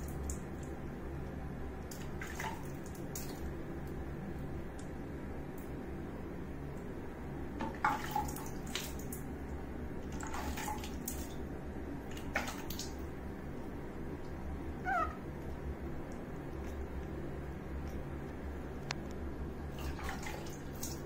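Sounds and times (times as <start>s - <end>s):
water splashing and dripping: 0.0s - 0.9s, 1.8s - 4.0s, 7.6s - 13.1s, 19.7s - 21.0s
baby monkey squeak: 14.8s - 15.2s.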